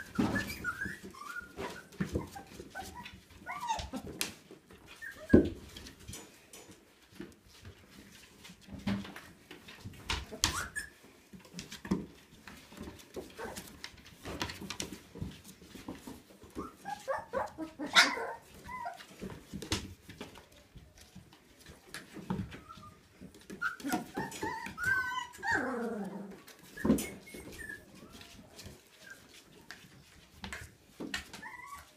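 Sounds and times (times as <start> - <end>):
puppies whimpering and squealing: 0.0 - 4.2, 4.8 - 5.6, 10.2 - 11.1, 16.3 - 19.3, 22.4 - 30.0, 31.2 - 31.9
paws clicking on wooden floor: 0.0 - 31.9.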